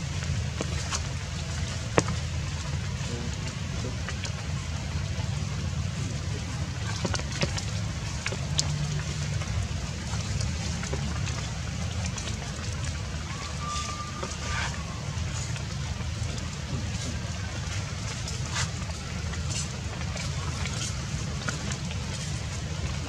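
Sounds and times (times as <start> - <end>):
steady low rumble: 0.0 - 23.0
high whistle-like tone: 13.2 - 15.3.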